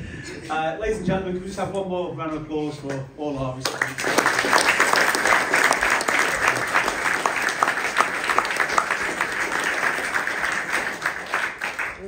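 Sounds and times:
audience applauding: 0:03.6 - 0:12.0.

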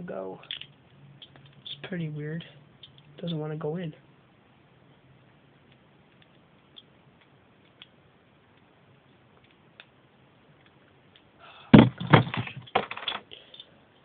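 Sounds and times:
loud knocks and clatter: 0:11.8 - 0:13.1.

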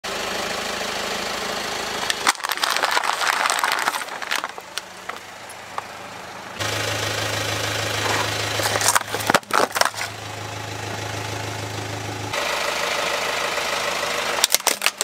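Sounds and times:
car engine humming: 0:00.0 - 0:15.0
plastic cups cracking and snapping: 0:02.1 - 0:05.3, 0:08.6 - 0:10.2, 0:14.4 - 0:15.0.

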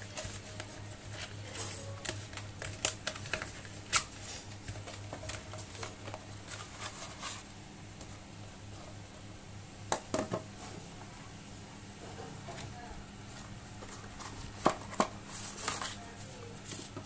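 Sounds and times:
cardboard box rustling: 0:03.0 - 0:07.6.

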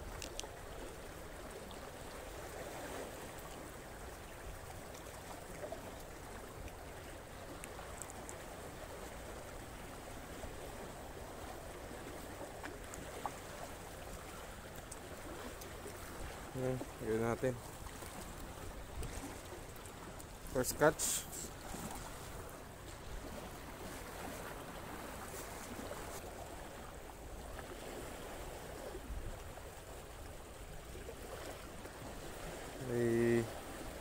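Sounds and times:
faint clicks: 0:00.0 - 0:00.5, 0:14.7 - 0:15.0
sea water lapping: 0:00.0 - 0:34.0.

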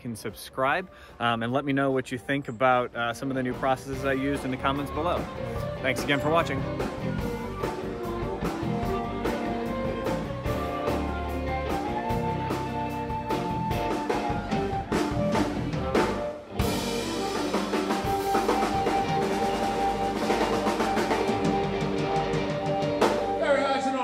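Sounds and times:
background music with drum kit: 0:00.0 - 0:24.0.

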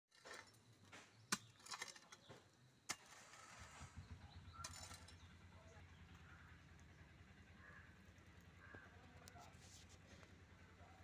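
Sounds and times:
hoe chopping stony soil: 0:00.1 - 0:04.0.

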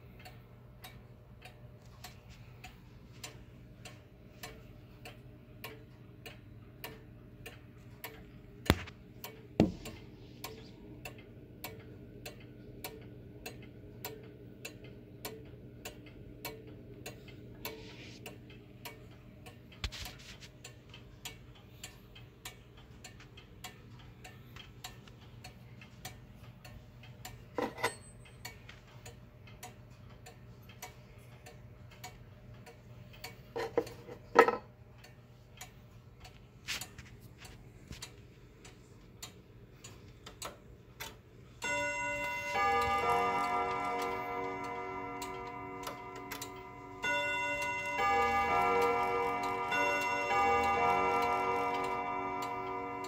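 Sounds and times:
wall clock ticking: 0:00.0 - 0:53.0
clock knocks: 0:09.6 - 0:10.0.

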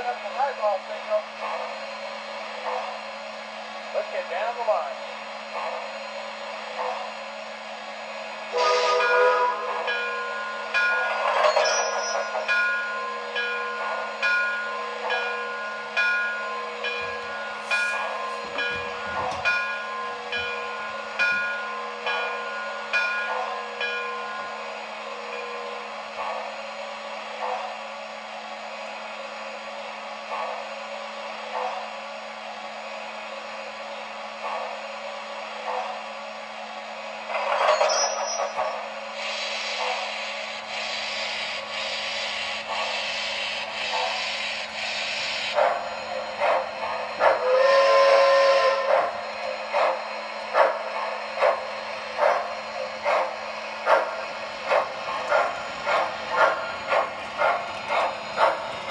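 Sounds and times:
steam locomotive chuffs: 0:00.0 - 0:58.9
train whistle blast: 0:08.5 - 0:09.9, 0:47.2 - 0:49.2
steam hiss with puffs: 0:17.4 - 0:19.0, 0:36.0 - 0:58.9.

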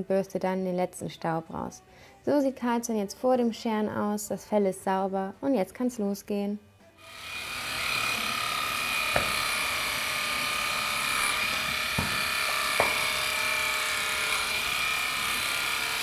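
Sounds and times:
electric clipper humming: 0:07.0 - 0:16.0.

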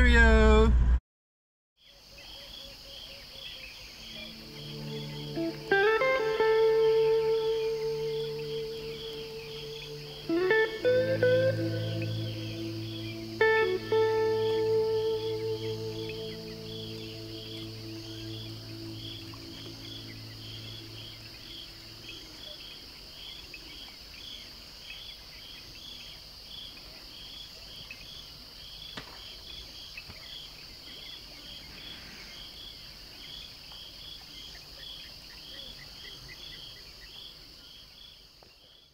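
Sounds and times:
cricket-like chirping: 0:01.8 - 0:38.9
insect shrill drone: 0:02.4 - 0:24.4
held musical tone: 0:04.2 - 0:22.5.

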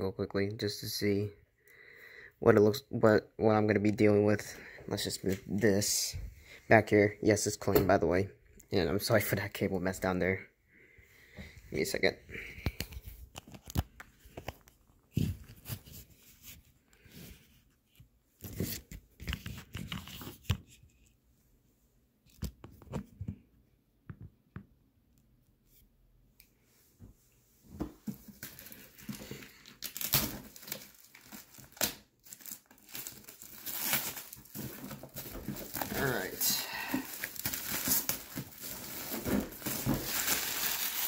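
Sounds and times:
plastic wrap tearing and crinkling: 0:28.4 - 0:41.0.

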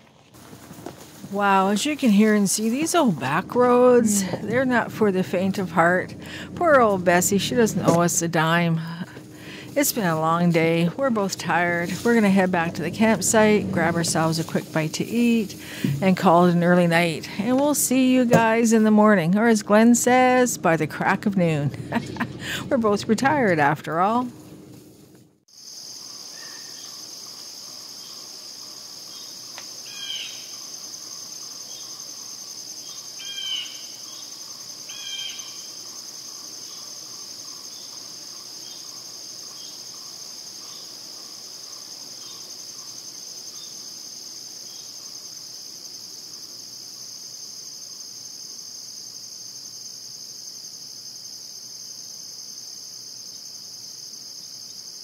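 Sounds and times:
insects trilling: 0:00.0 - 0:24.2, 0:25.5 - 0:55.0.

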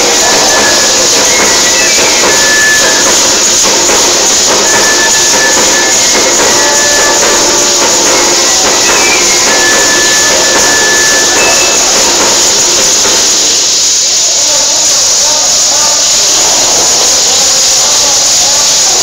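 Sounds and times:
rattles shaking: 0:00.0 - 0:15.1
flute playing high notes: 0:00.0 - 0:17.6.

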